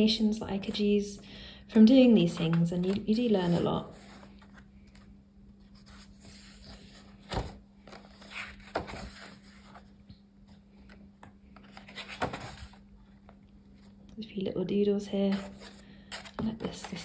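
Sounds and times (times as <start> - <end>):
faint steady hum: 0.0 - 17.0
sketchbook pages turning: 1.8 - 14.0, 15.2 - 17.0.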